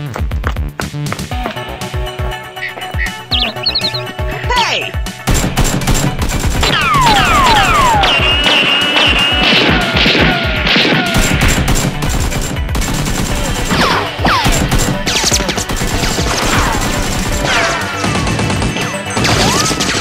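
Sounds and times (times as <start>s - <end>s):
background music: 0.0s - 20.0s
gun-like shots: 5.2s - 20.0s.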